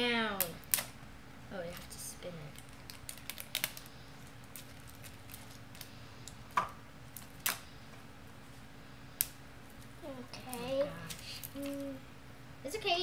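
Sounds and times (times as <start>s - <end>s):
plastic toy capsule ticks and crinkles: 2.5s - 6.4s.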